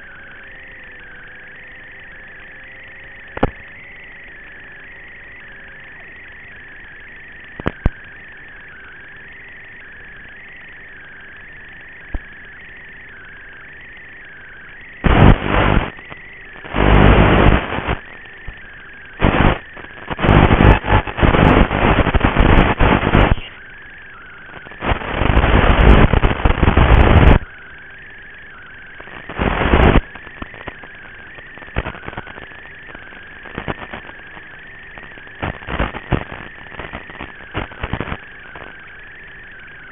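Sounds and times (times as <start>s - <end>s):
loud static rushes: 15.0s - 23.7s, 24.4s - 27.5s, 29.0s - 39.0s.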